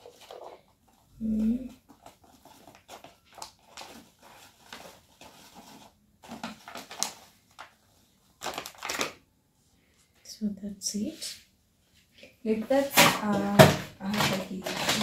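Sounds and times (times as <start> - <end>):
plastic packet crinkling: 0.0 - 9.3, 12.8 - 15.0.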